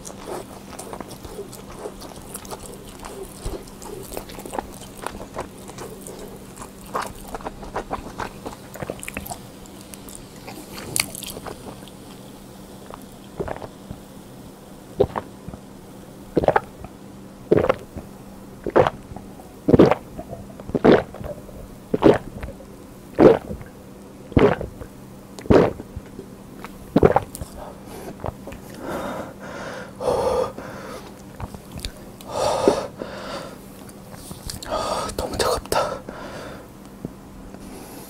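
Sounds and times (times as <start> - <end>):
person gulping beer: 13.4 - 13.8, 15.0 - 15.6, 16.4 - 16.7, 17.5 - 18.0, 18.6 - 22.6, 23.2 - 26.2
heavy breaths: 27.5 - 31.2, 32.3 - 36.7.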